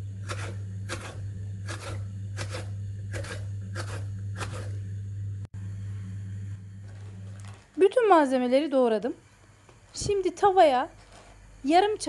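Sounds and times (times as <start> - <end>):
low hum: 0.0 - 8.2
knife cutting on wooden board: 0.2 - 4.8.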